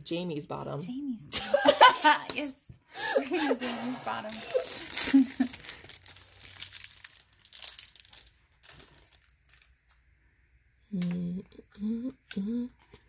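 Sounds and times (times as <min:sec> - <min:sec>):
wrapper crinkling and tearing: 0:04.0 - 0:10.1.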